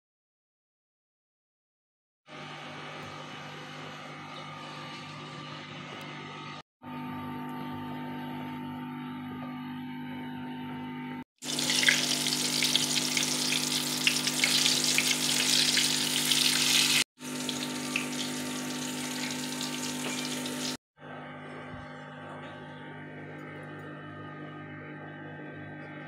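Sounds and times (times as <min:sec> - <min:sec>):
chicken deep-frying in oil: 0:11.4 - 0:20.8.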